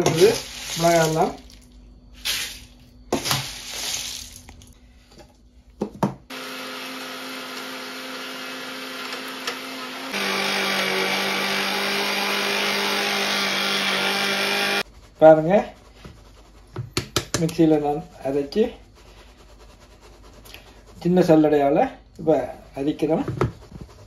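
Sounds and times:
mixer grinder motor grinding: 0:06.3 - 0:14.8.

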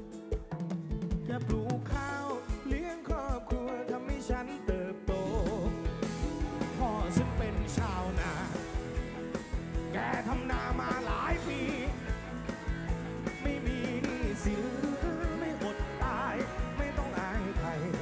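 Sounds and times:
drum-kit beat: 0:00.0 - 0:18.0.

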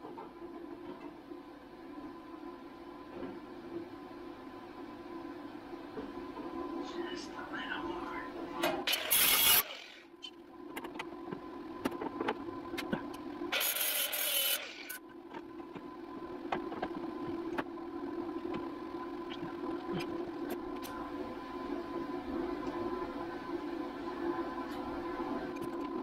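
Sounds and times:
steady hum: 0:00.0 - 0:26.0
welder crackling burst: 0:08.9 - 0:10.0.

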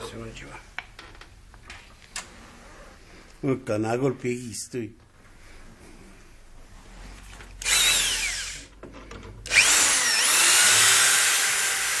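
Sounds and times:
electric drill whirring: 0:07.6 - 0:08.7, 0:09.4 - 0:12.0.

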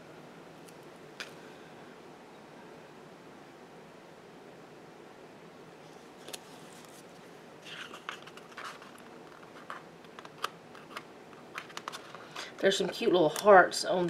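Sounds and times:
room hiss: 0:00.0 - 0:14.0
sticker sheets rustling: 0:06.0 - 0:13.0.

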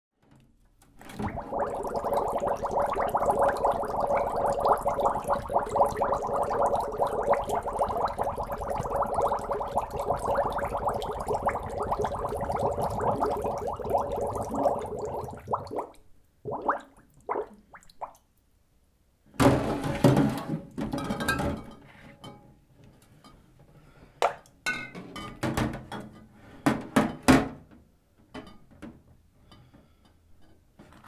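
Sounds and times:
bottles bubbling and glugging: 0:01.0 - 0:18.2.

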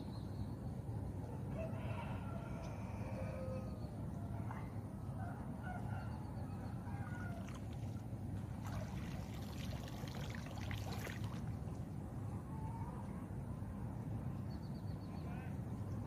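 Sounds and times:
water splashing and dripping: 0:07.4 - 0:11.9.

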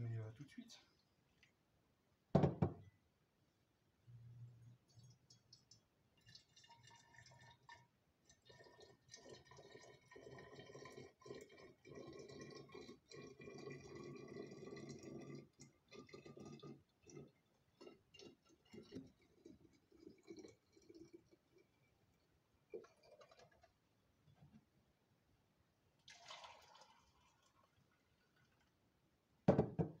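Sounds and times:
liquid trickling into glass bottle: 0:04.6 - 0:23.7, 0:26.0 - 0:28.7.

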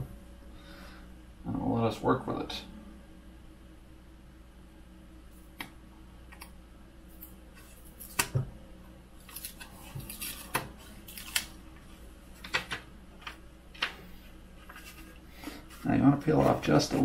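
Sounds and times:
magnetic sheet clicking and crackling: 0:09.3 - 0:11.6.

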